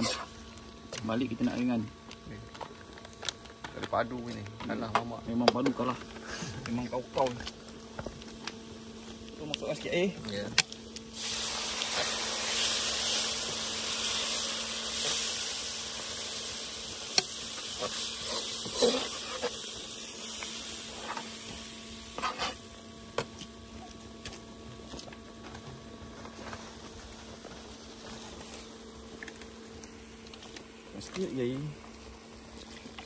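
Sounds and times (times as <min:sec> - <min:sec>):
food sizzling in hot oil: 0:00.0 - 0:00.5, 0:11.1 - 0:23.0.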